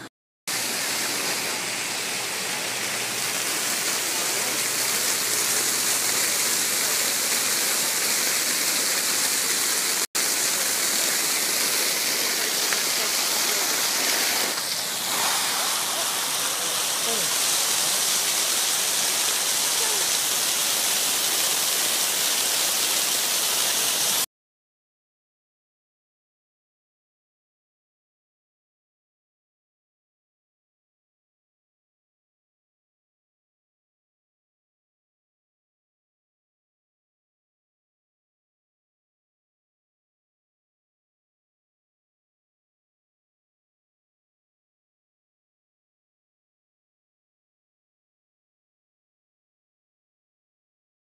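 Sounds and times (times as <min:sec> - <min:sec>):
fountain water rushing and splashing: 0:00.5 - 0:24.3
spray hitting microphone: 0:12.5 - 0:19.6.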